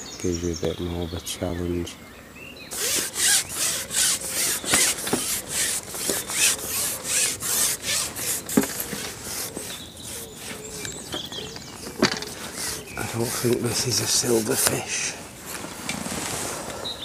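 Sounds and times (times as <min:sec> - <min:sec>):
fishing pole rasping over hands: 0:02.7 - 0:14.8.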